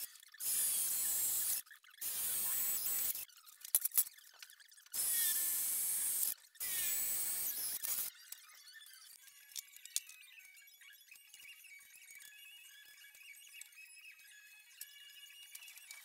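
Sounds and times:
drill boring into steel: 0:00.4 - 0:03.2, 0:05.0 - 0:08.1.

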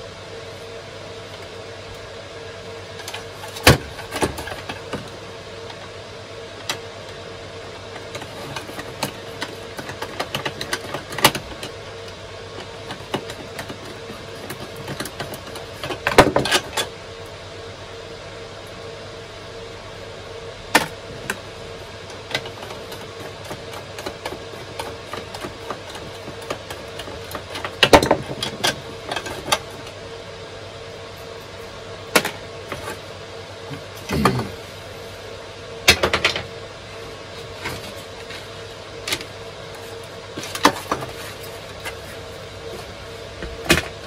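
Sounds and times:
server hum: 0:00.0 - 0:44.0
plastic parts clicking and knocking: 0:08.0 - 0:11.8, 0:22.2 - 0:29.8.

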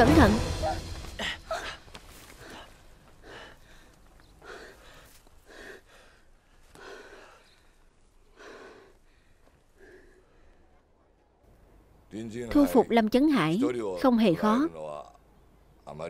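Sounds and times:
heavy gasping breaths: 0:01.1 - 0:10.8.

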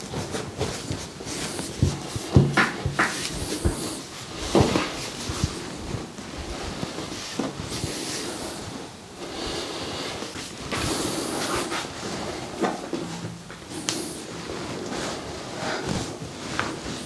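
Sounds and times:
clothing and padded table rustling: 0:00.0 - 0:17.0.

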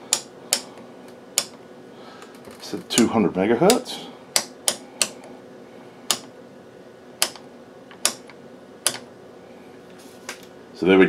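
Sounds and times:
rotary switch clicking: 0:00.1 - 0:00.7, 0:01.4 - 0:01.6, 0:03.7 - 0:05.2, 0:06.1 - 0:06.3, 0:07.2 - 0:09.1.

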